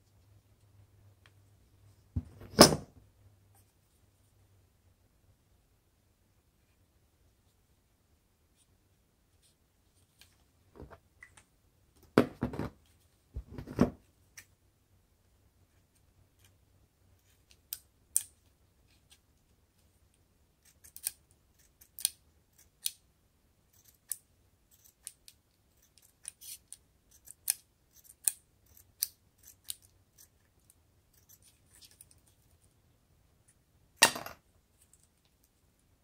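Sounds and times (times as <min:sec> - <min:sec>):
scissors snipping plastic straw: 0:20.7 - 0:23.0.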